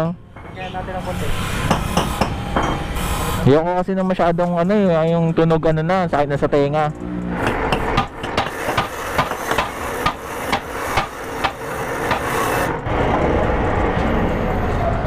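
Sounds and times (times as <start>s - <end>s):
hammer knocking on exhaust muffler: 7.4s - 12.3s.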